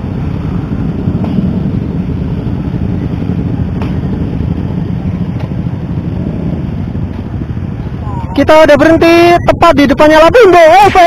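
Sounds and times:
motorcycle engines rumbling: 0:00.0 - 0:11.0
wind buffeting microphone: 0:00.0 - 0:11.0.

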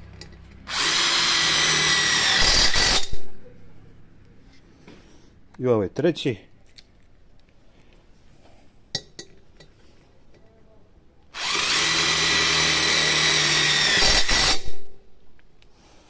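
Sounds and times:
impact driver driving screw: 0:00.7 - 0:03.2, 0:11.4 - 0:14.9.

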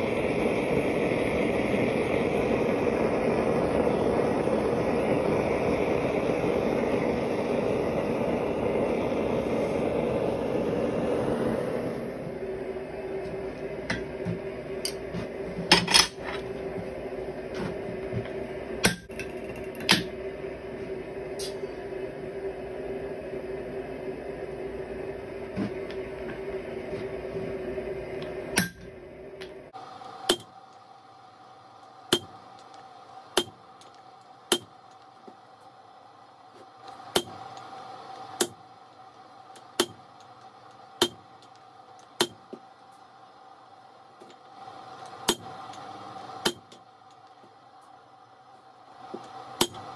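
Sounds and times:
steady hum: 0:00.0 - 0:49.9
hammer striking steel on anvil: 0:18.8 - 0:19.2, 0:28.6 - 0:28.9, 0:30.3 - 0:30.6, 0:32.1 - 0:32.4, 0:33.4 - 0:33.6, 0:34.5 - 0:34.8, 0:41.0 - 0:41.2.

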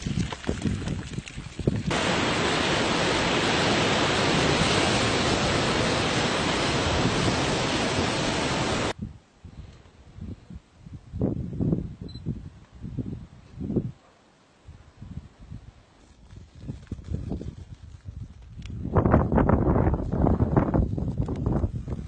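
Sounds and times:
steam hissing: 0:01.9 - 0:08.9
surf rushing: 0:01.9 - 0:09.0.

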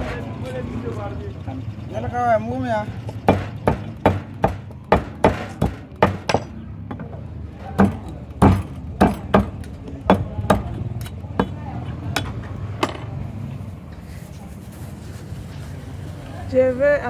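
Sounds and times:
knife chopping on wooden block: 0:03.1 - 0:06.5, 0:07.8 - 0:13.0.

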